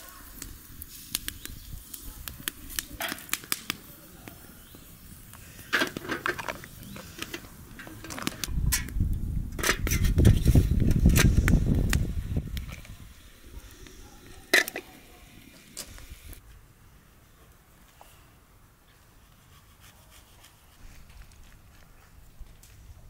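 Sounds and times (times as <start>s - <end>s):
metal lids clinking: 5.7s - 8.9s, 14.5s - 15.0s.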